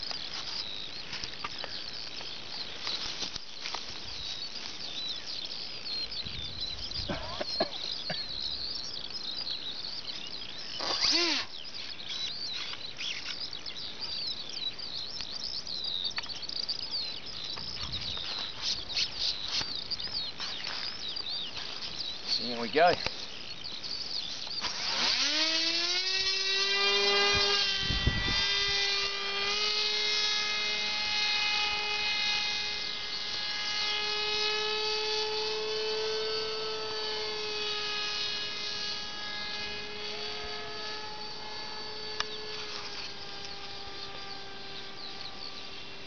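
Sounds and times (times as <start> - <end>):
model plane propeller whine: 0.0 - 14.6, 24.3 - 46.0.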